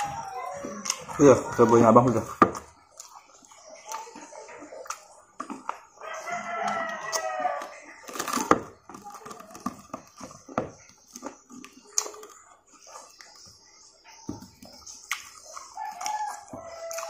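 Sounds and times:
crunching and chewing fried chicken: 0.0s - 17.0s
rooster crowing: 6.0s - 7.8s, 15.8s - 17.0s.

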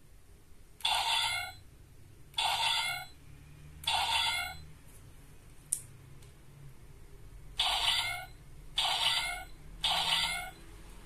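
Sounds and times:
toy electronic chime: 0.8s - 1.6s, 2.4s - 3.2s, 3.9s - 4.7s, 7.6s - 10.8s.

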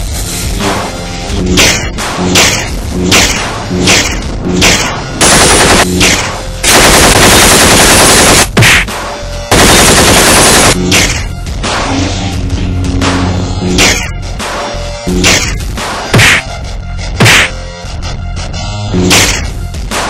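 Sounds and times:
action film music: 0.0s - 20.0s
rapid machine-gun fire: 5.2s - 5.9s, 6.6s - 8.6s, 9.5s - 10.8s
heavy hits: 17.2s - 17.6s.

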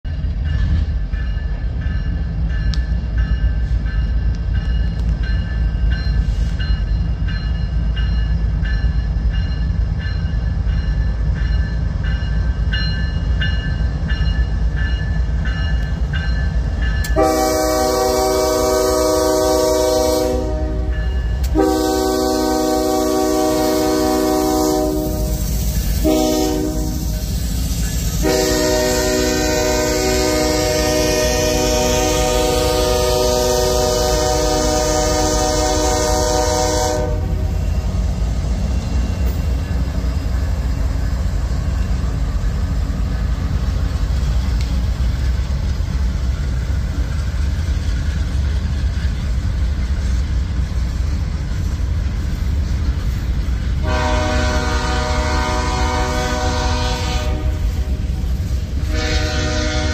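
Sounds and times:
freight locomotives rumbling: 0.0s - 59.9s
locomotive air horn blasts: 17.1s - 27.3s, 28.2s - 37.5s, 53.8s - 58.1s, 58.8s - 59.9s.

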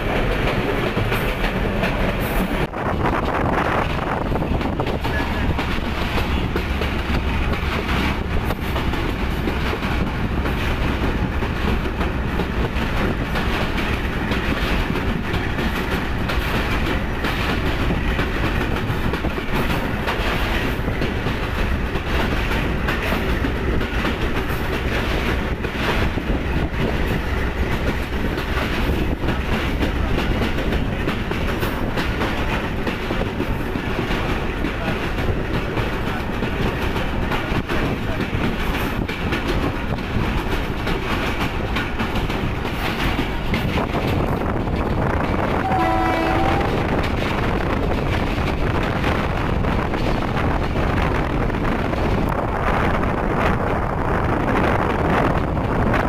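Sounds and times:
train wheels rumbling on rails: 0.0s - 56.0s
wheels clicking over rail joints: 0.0s - 56.0s.

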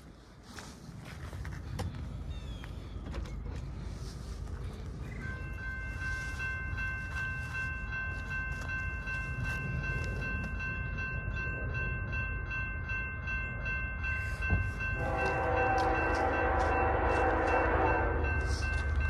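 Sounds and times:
train rumbling: 0.0s - 19.0s
crossing bell ringing: 4.0s - 19.0s
locomotive horn: 15.0s - 18.7s.

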